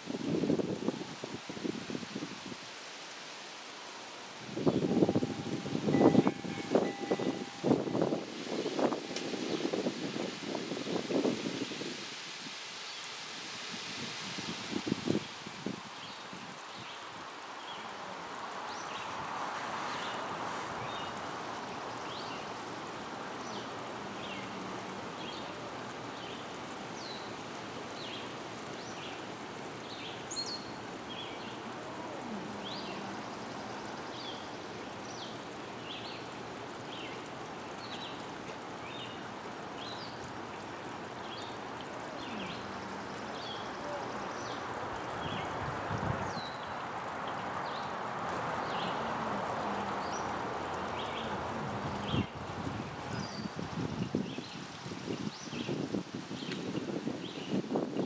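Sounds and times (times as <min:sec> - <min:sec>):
small birds chirping: 0:41.2 - 0:45.6.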